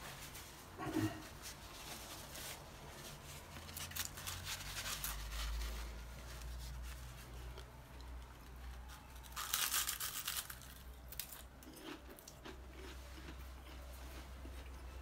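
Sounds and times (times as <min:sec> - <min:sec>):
paper napkin rustling: 0:00.0 - 0:07.6.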